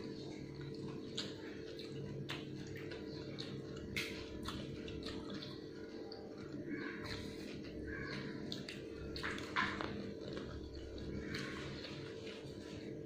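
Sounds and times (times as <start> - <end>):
steady low hum: 0.0 - 13.0
liquid sloshing and dripping: 8.2 - 12.8.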